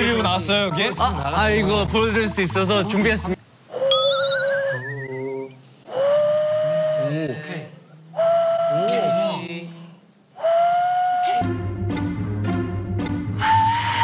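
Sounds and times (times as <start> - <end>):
hand whistle notes: 10.4 - 11.5.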